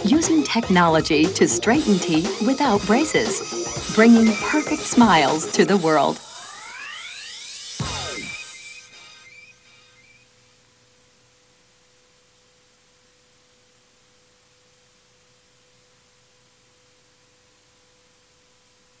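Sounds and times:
faint steady hiss: 0:00.0 - 0:19.0
thin steady tone: 0:00.8 - 0:10.6.

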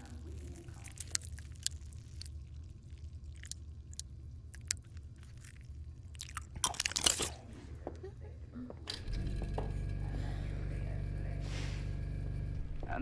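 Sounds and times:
wet chewing: 0:00.0 - 0:07.6
low steady hum: 0:00.0 - 0:13.0.

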